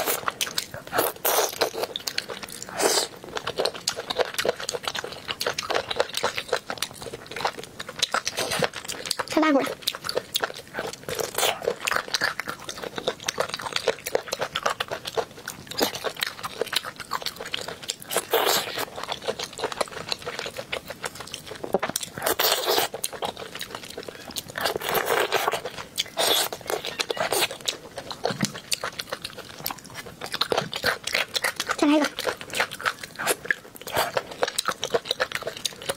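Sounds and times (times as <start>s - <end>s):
wet chewing and lip smacks: 0.0s - 35.9s
noodles being slurped: 21.7s - 28.3s
wet slurps: 22.2s - 23.0s, 24.6s - 27.7s.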